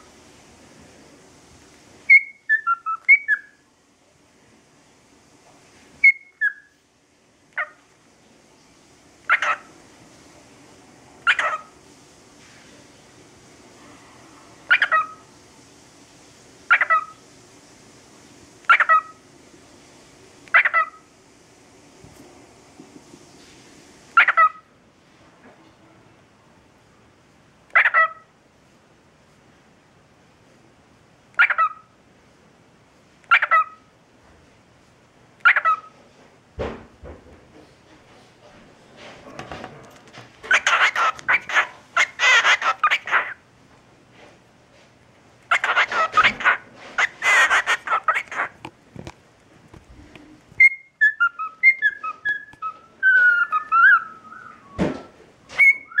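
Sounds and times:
cockatiel talking calls: 2.1s - 3.6s, 6.0s - 6.7s, 7.6s - 7.8s, 9.2s - 9.7s, 11.2s - 11.7s, 14.7s - 15.2s, 16.7s - 17.2s, 18.6s - 19.2s, 20.5s - 21.0s, 24.2s - 24.7s, 27.7s - 28.3s, 31.4s - 31.9s, 33.3s - 33.8s, 35.4s - 35.9s, 40.4s - 43.4s, 45.5s - 48.6s, 50.6s - 54.8s, 55.6s - 56.0s
cockatiel whistling: 2.1s - 3.6s, 6.0s - 6.7s, 50.6s - 56.0s.

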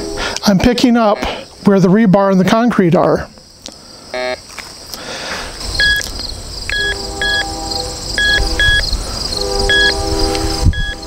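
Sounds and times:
low sustained tones: 5.7s - 11.0s
metal detector beeping: 5.8s - 6.1s, 6.7s - 8.9s, 9.6s - 11.0s.

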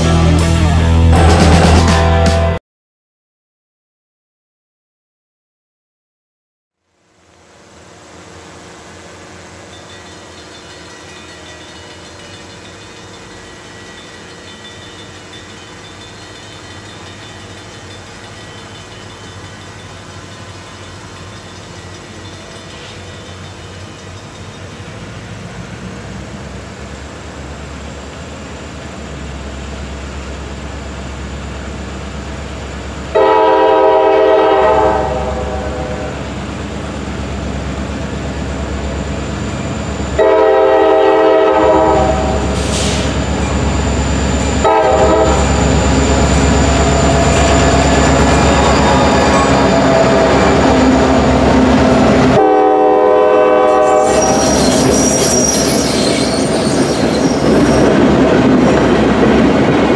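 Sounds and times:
diesel locomotive engine rumble: 0.0s - 2.6s, 7.0s - 59.9s
train air horn: 33.1s - 36.4s, 40.2s - 43.2s, 44.6s - 45.7s, 52.3s - 55.6s.

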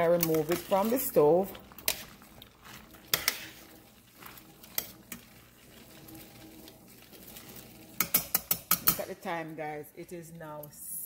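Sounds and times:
metal tongs clinking on pot: 0.0s - 5.3s, 8.0s - 9.4s.

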